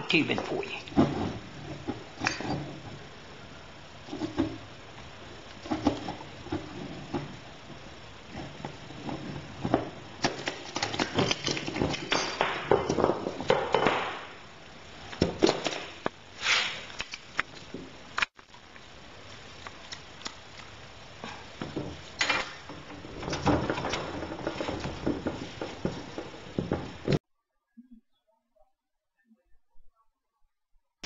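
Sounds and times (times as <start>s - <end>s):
copper pipe knocks and rubs: 22.6s - 27.2s.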